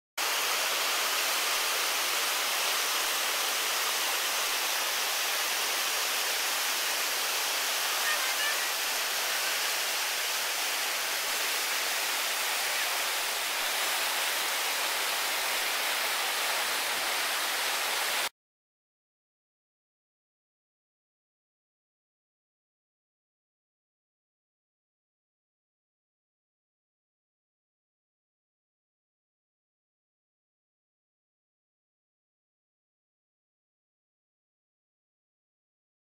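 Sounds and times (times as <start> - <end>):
river rapid rushing: 4.2 - 18.3.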